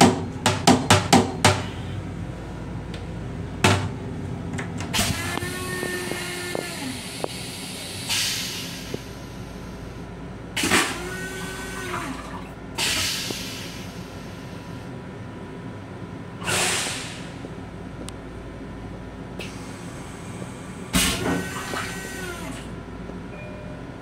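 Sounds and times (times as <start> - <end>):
train rumble: 0.0 - 24.0
toilet flush motor whine: 4.9 - 7.1, 10.6 - 12.6, 21.0 - 22.7.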